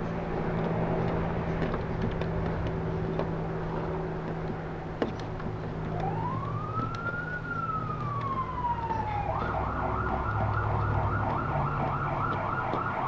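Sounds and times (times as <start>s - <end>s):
emergency vehicle siren: 5.9s - 13.0s.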